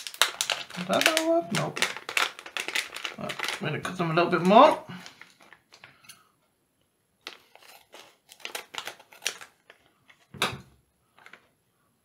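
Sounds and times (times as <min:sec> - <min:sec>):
plastic bag crinkling: 0:00.0 - 0:06.1, 0:07.2 - 0:10.4, 0:11.1 - 0:11.5.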